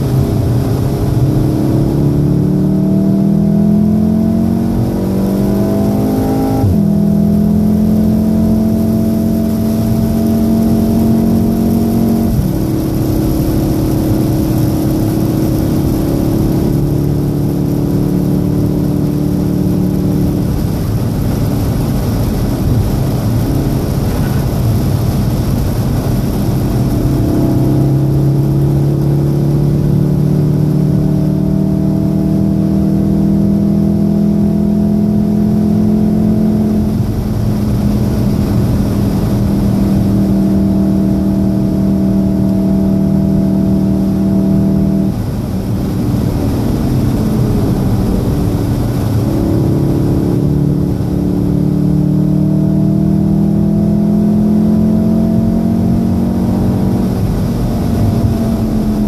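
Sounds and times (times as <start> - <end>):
car engine pulling hard: 0.0 - 59.0.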